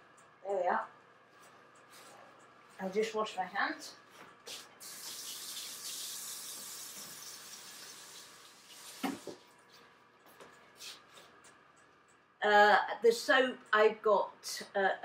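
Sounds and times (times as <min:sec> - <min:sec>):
tap water running over hands: 0:04.5 - 0:09.5.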